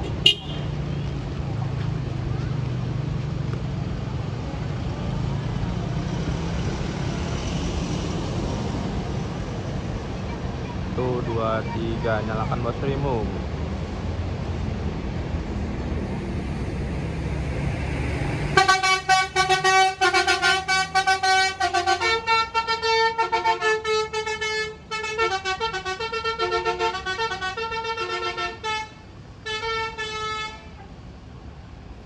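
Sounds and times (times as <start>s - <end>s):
musical air horn tune: 18.6s - 30.6s.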